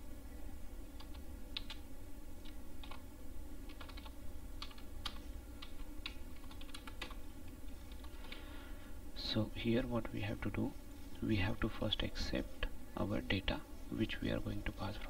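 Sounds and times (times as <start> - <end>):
low steady hum: 0.0 - 15.0
keyboard typing: 1.0 - 1.8, 2.4 - 3.0, 3.7 - 7.2.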